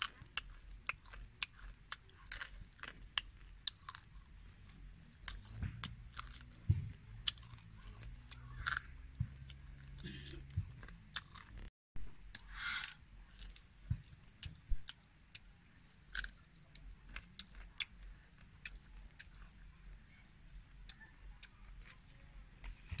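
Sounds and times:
insect chirping: 0:02.6 - 0:07.2, 0:11.1 - 0:23.0.

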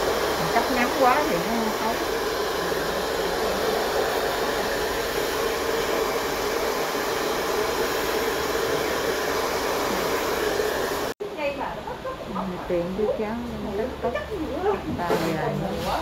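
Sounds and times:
hair dryer blowing: 0:00.0 - 0:11.2.

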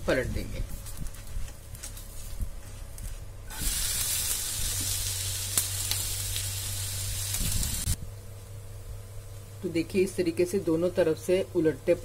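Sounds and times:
sharp crackles: 0:00.8 - 0:08.0
pancake sizzling on a pan: 0:03.5 - 0:08.0.

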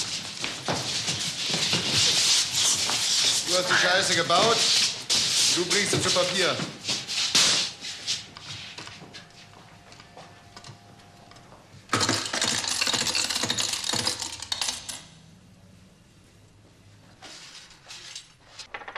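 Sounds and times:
coins clattering: 0:12.0 - 0:15.0.

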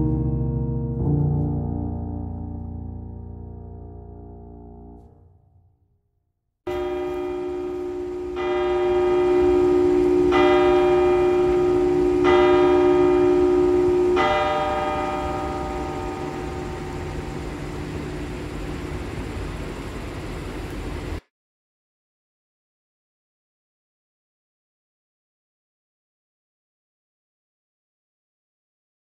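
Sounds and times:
church bell striking: 0:06.7 - 0:19.4.

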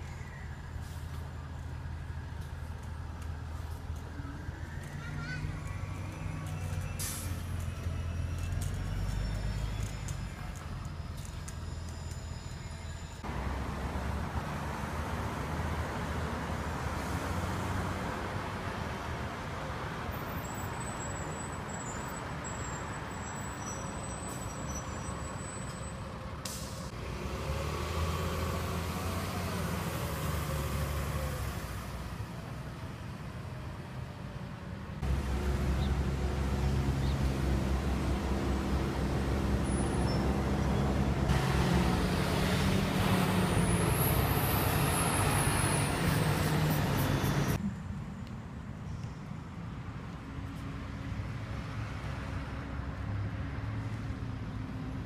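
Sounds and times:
bus engines humming: 0:00.0 - 0:55.0
road traffic: 0:00.0 - 0:55.0.

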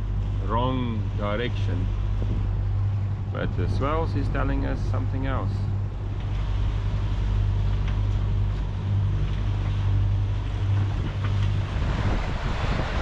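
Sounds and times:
low diesel engine hum: 0:00.0 - 0:13.0
water rushing past hulls: 0:00.0 - 0:13.0
wind buffeting microphone: 0:01.5 - 0:13.0.

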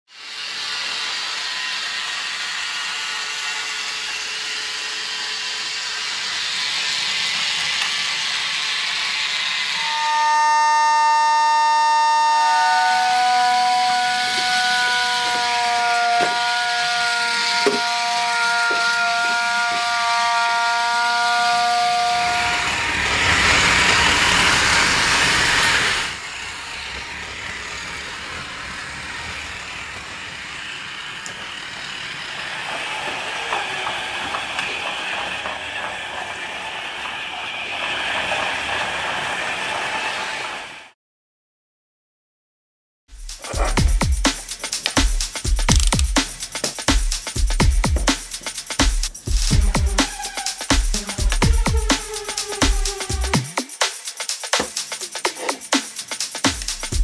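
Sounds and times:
steam hiss: 0:00.1 - 0:41.0, 0:43.2 - 0:57.0
sharp clicks: 0:44.7 - 0:46.3.

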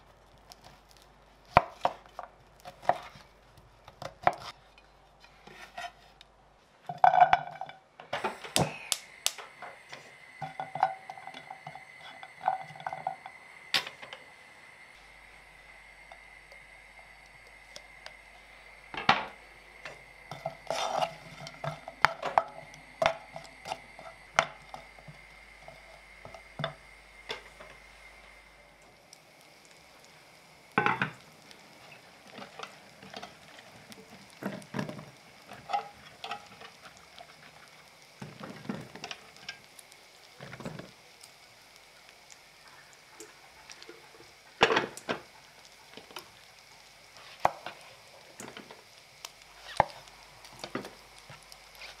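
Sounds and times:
bacon sizzling in a pan: 0:00.0 - 0:04.6, 0:06.9 - 0:52.0
steady hum: 0:00.0 - 0:52.0.

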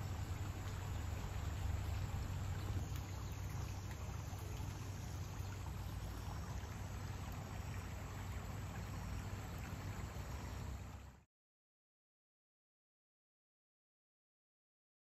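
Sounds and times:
floodwater rushing: 0:00.0 - 0:11.2.

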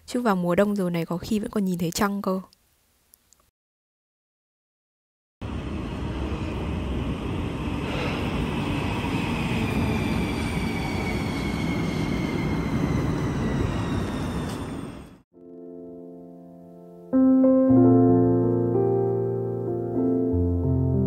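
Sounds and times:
train wheels rumbling on rails: 0:05.5 - 0:15.2.

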